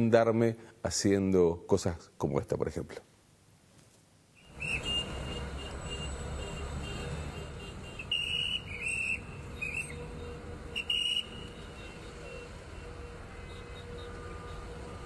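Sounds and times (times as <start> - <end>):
shrill whistle blasts: 4.4 - 6.1, 8.0 - 10.1, 10.7 - 12.5
street noise rumble: 4.4 - 15.0.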